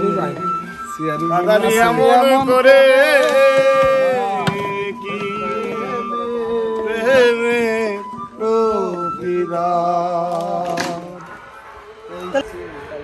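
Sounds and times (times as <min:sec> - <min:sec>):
backing drone: 0:00.0 - 0:13.0
man singing folk song: 0:01.4 - 0:11.3.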